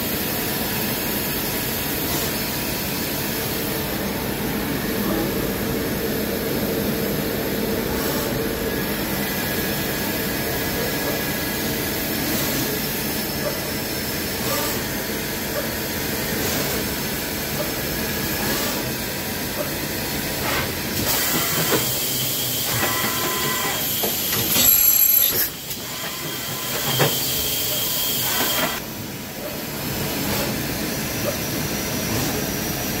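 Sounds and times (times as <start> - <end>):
machine whine: 24.3 - 27.0.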